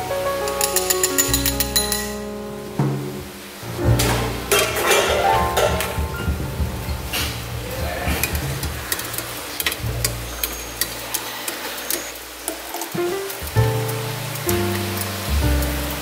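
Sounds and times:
background music: 0.0s - 9.0s, 13.0s - 16.0s
water bubbling and sloshing: 0.5s - 16.0s
metal strainer clinking on pot: 0.6s - 2.2s
water pouring into pot: 7.5s - 16.0s.

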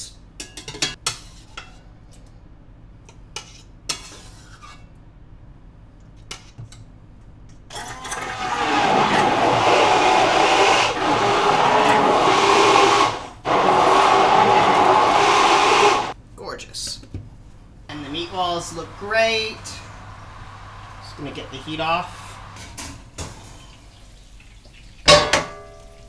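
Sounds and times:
immersion blender running: 7.7s - 16.2s.

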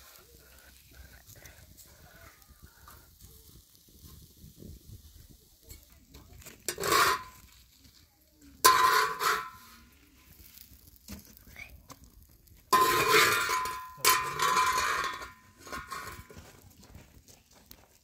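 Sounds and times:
knife scraping on griddle: 5.6s - 8.0s, 8.6s - 11.3s, 12.7s - 16.5s.

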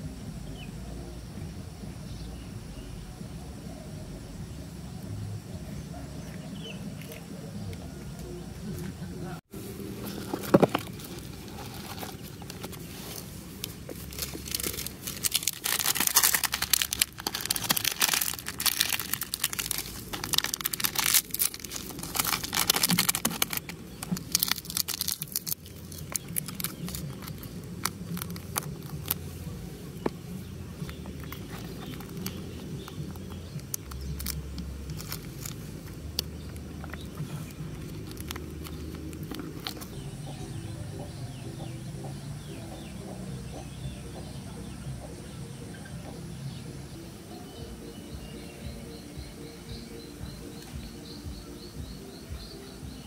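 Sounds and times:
plastic sachets crinkling: 9.8s - 40.0s
plastic tearing: 10.0s - 29.2s, 30.8s - 40.0s.

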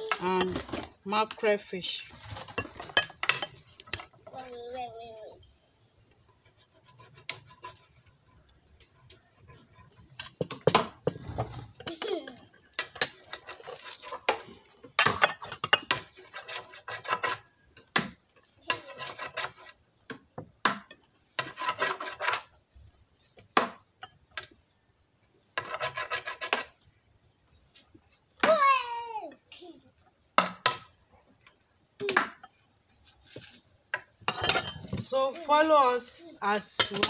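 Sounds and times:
dishes rubbing and scraping: 0.0s - 4.4s, 6.0s - 20.0s, 20.9s - 23.2s, 25.5s - 27.0s, 32.2s - 37.0s.

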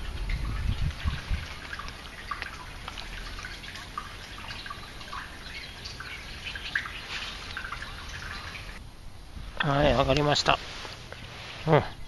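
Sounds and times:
water dripping and lapping: 0.0s - 8.8s.

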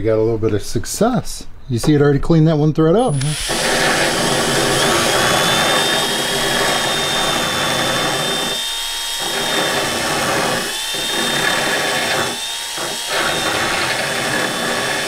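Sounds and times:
electric drill grinding bolt threads: 3.1s - 15.0s.

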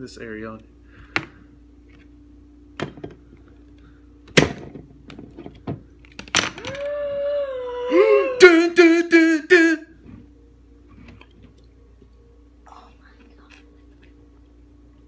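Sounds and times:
man laughing: 7.7s - 9.8s.

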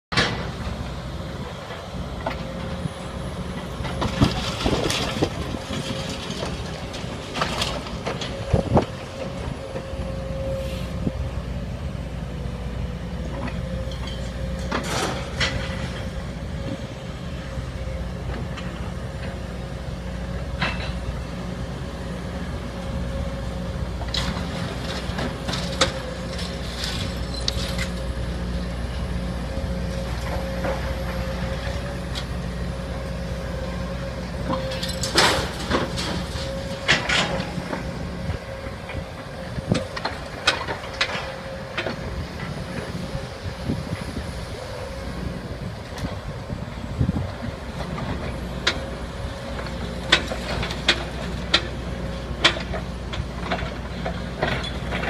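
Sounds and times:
diesel excavator engines running: 0.1s - 55.0s.

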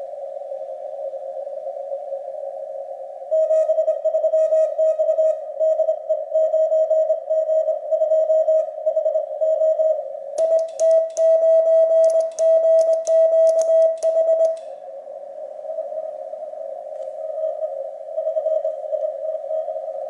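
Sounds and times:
paddle key metal clicks: 10.4s - 11.3s, 12.0s - 14.7s
morse code beeps: 10.4s - 14.6s.

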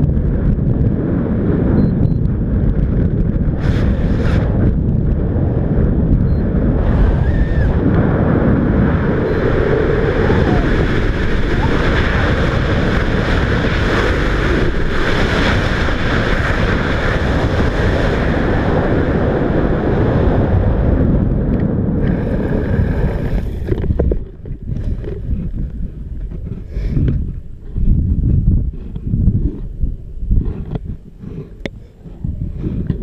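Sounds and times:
wind rushing over microphone: 0.0s - 33.0s.

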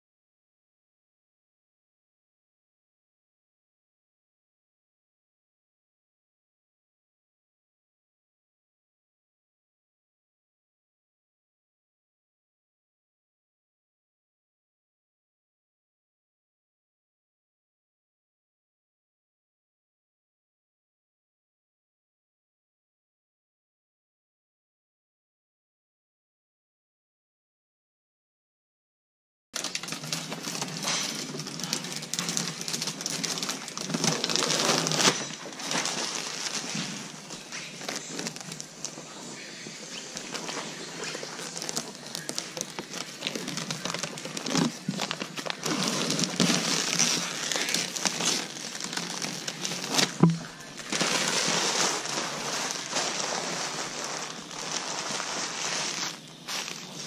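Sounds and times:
plastic film crinkling: 29.6s - 57.0s.

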